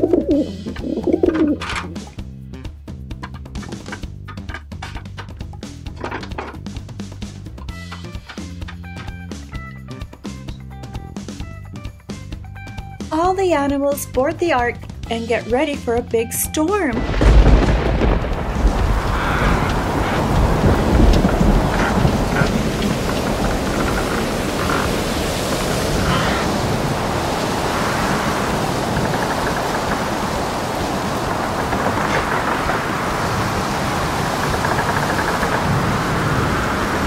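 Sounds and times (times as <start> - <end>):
heavy rain hiss: 0.0 - 2.6, 17.0 - 37.0
thunder rumbling: 16.8 - 37.0.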